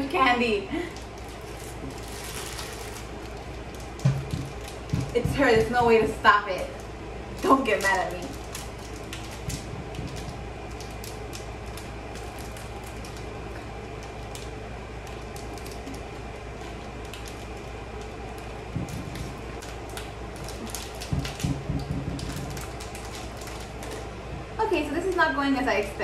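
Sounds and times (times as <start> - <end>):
low room hum: 0.0 - 26.0
plastic candy packet crinkling: 0.8 - 24.2
short low thuds: 18.7 - 19.5.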